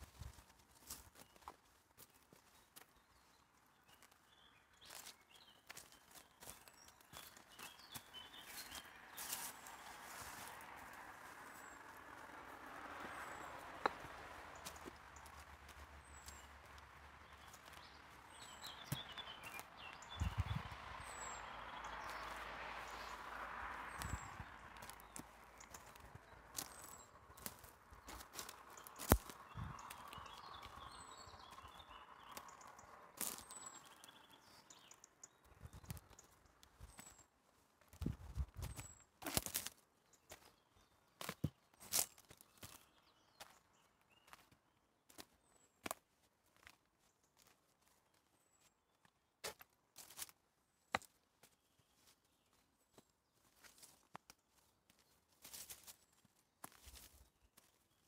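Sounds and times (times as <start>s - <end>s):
footsteps on forest floor: 0.0s - 58.0s
birds chirping: 0.9s - 37.4s
twig cracking: 27.4s - 30.8s.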